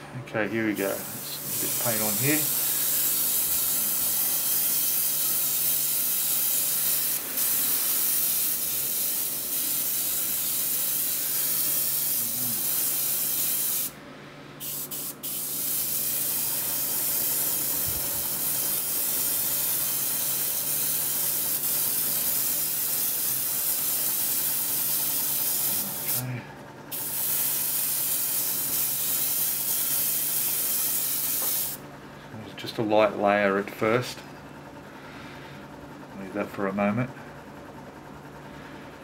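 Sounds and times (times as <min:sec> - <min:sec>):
airbrush spraying hiss: 0:00.8 - 0:14.0, 0:14.6 - 0:26.2, 0:26.9 - 0:31.8.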